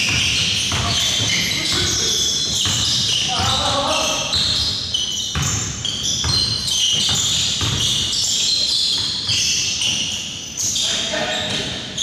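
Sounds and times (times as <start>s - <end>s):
basketball bouncing on gym floor: 0.0s - 10.1s.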